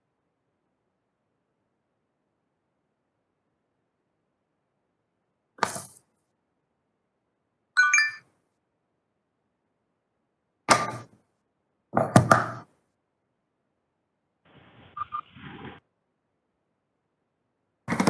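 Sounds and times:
notification chime: 7.8s - 8.2s.

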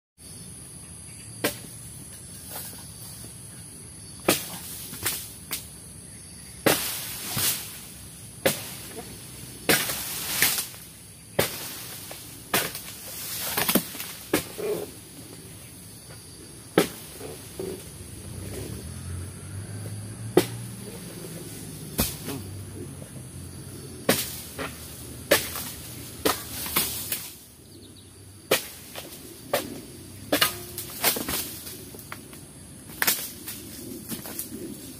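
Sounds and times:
blade chopping palm fronds: 1.4s - 1.8s, 4.2s - 5.8s, 6.6s - 15.0s, 16.7s - 18.5s, 19.8s - 22.9s, 24.0s - 27.5s, 28.4s - 34.9s
palm fronds rustling: 4.2s - 5.8s, 6.6s - 27.6s, 28.4s - 34.9s.

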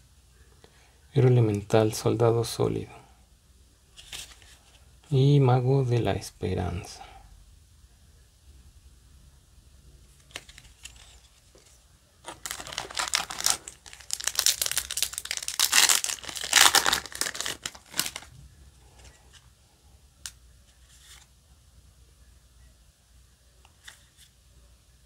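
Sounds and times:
foil wrapper tearing and crinkling: 12.2s - 18.3s.

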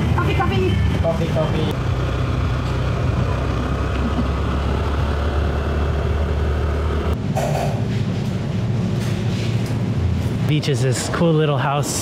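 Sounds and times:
scooter engine droning: 1.4s - 7.2s.

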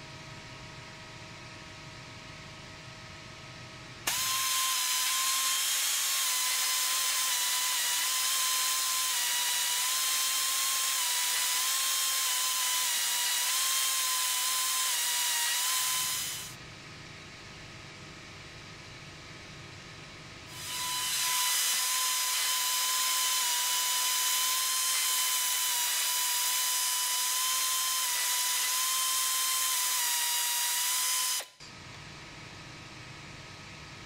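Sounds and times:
pneumatic tool high whine: 4.1s - 16.6s, 20.5s - 31.6s.

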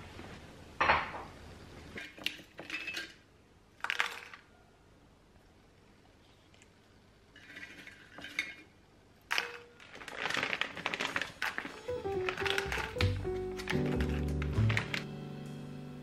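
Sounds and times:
dried food clattering into bowl: 3.8s - 4.5s, 9.3s - 15.0s
background music: 11.8s - 16.0s.

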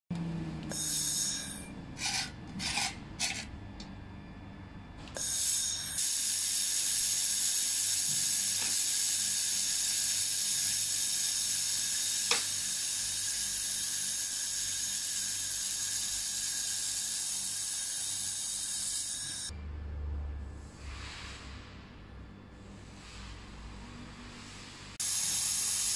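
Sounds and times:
laser welder hissing: 0.7s - 1.6s, 5.2s - 19.5s, 25.0s - 25.9s.

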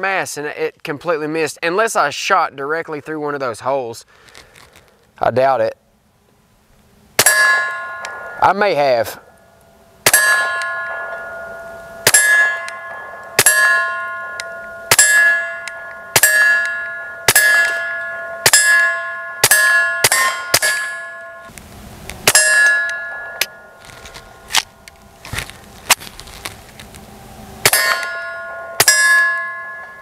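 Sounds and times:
bullet clanging on steel plate: 10.0s - 21.5s, 27.7s - 30.0s.

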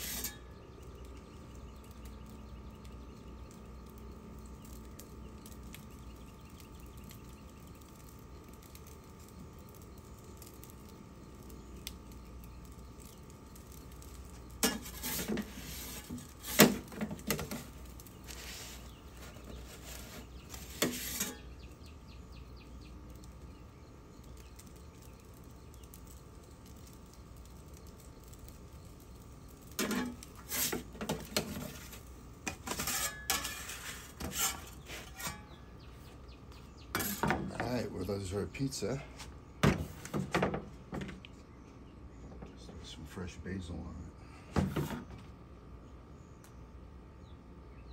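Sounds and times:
metal pizza peel clattering: 0.0s - 0.5s, 14.6s - 21.6s, 29.7s - 35.6s, 36.9s - 37.6s
faint steady hum: 0.0s - 47.9s.

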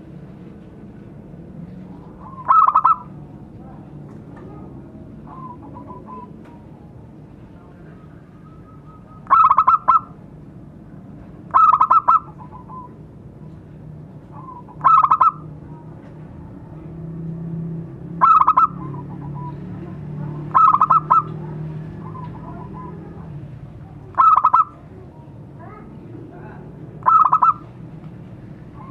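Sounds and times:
dove cooing: 2.2s - 3.1s, 5.3s - 6.4s, 7.9s - 10.2s, 11.5s - 13.0s, 14.4s - 15.5s, 18.2s - 19.6s, 20.4s - 23.3s, 24.1s - 24.7s, 27.0s - 27.7s.

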